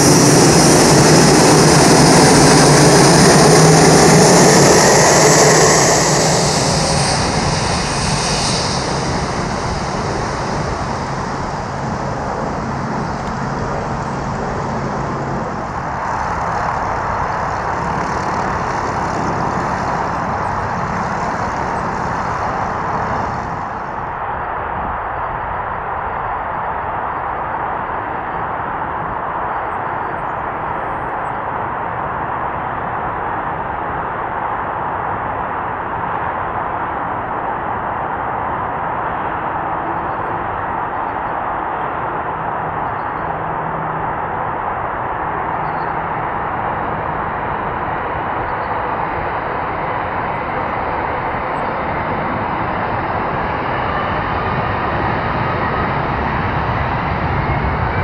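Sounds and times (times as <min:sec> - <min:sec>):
thin rising whine: 0:00.0 - 0:24.6
jet engines roaring: 0:00.0 - 0:58.0.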